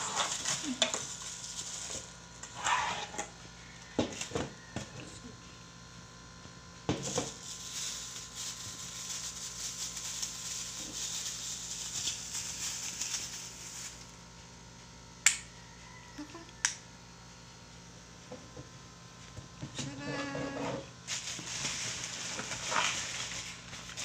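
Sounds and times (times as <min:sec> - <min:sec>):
plastic bag crinkling: 0:00.2 - 0:02.2, 0:07.3 - 0:14.2, 0:21.1 - 0:24.0.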